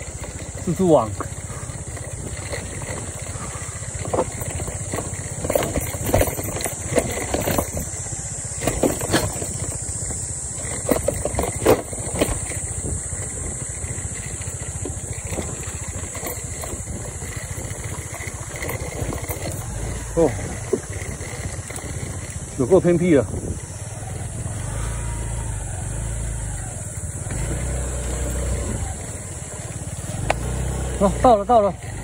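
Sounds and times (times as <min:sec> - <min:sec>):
knocks and rattles: 0:00.0 - 0:23.8
scooter engine running: 0:00.0 - 0:32.0.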